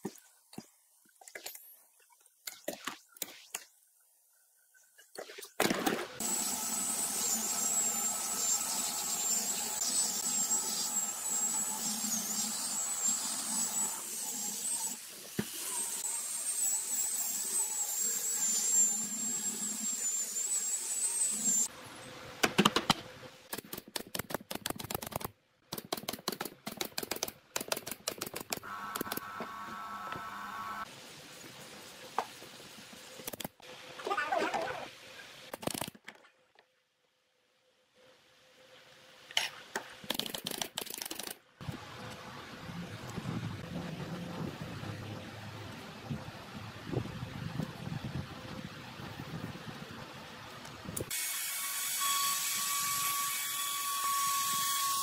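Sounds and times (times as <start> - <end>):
sharp clicks and knocks: 22.4 - 29.2.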